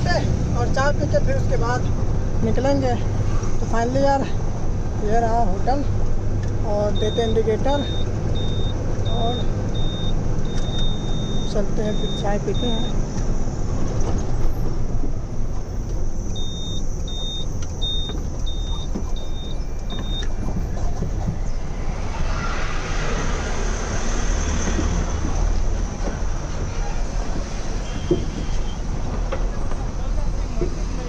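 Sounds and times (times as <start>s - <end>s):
truck engine and road noise: 0.0s - 31.0s
turn indicator buzzer beeps: 6.9s - 13.0s, 16.2s - 20.4s.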